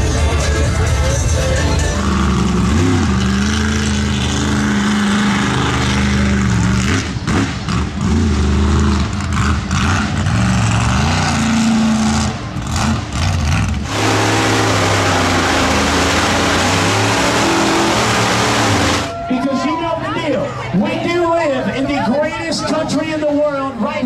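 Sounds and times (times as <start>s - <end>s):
truck engines droning at high revs: 0.0s - 24.0s
truck engines revving: 0.0s - 24.0s.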